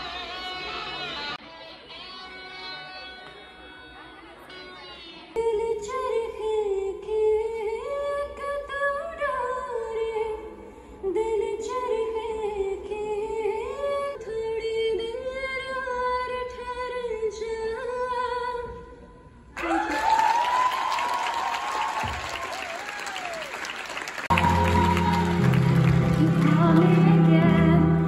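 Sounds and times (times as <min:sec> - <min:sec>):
woman singing into a microphone: 0:04.9 - 0:19.2, 0:26.2 - 0:28.0.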